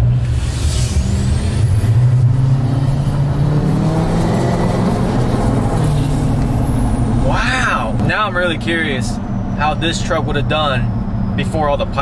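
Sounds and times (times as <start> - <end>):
high turbo whistle: 0.0 - 8.0
diesel truck engine accelerating: 0.0 - 12.0.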